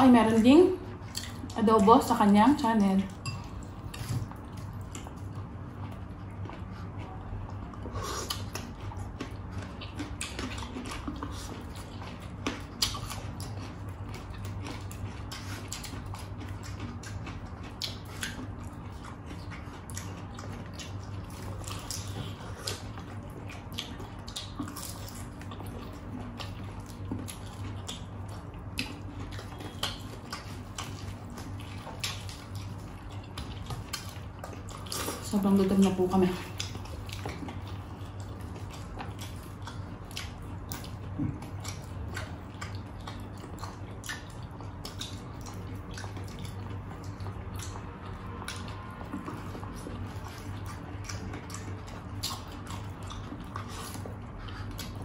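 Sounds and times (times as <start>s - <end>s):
steady low hum: 0.0s - 55.0s
chewing and lip smacking: 0.3s - 55.0s.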